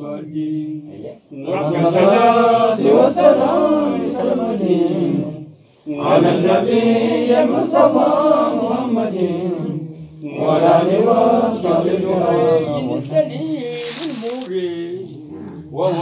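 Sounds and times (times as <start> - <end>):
man chanting devotional song: 12.6 - 16.0.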